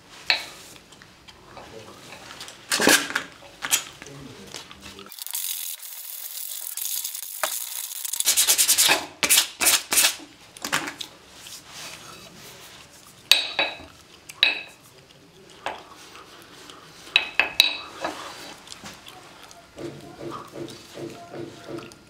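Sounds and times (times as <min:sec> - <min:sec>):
sandpaper rubbing on steel: 0:05.9 - 0:10.2.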